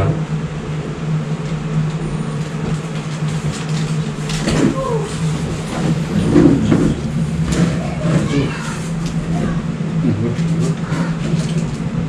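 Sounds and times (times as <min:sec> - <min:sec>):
steady low hum: 0:00.0 - 0:12.0
people getting up from seats: 0:01.9 - 0:09.6
murmured words: 0:04.5 - 0:11.6.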